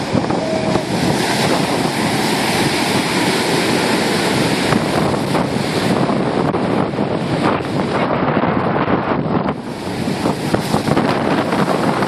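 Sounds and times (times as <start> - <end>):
wind buffeting microphone: 0.0 - 12.0
surf breaking against pilings: 9.6 - 12.0.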